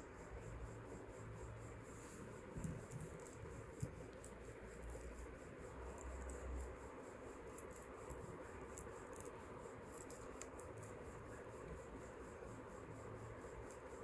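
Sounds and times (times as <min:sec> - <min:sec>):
jewelry ticks and rustles: 0:02.0 - 0:06.8, 0:07.4 - 0:11.8.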